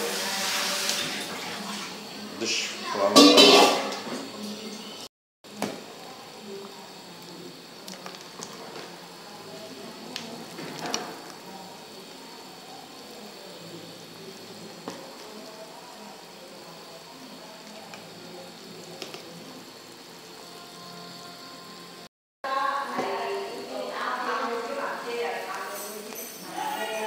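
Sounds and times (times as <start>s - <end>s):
curry boiling in a pot: 0.0s - 27.0s.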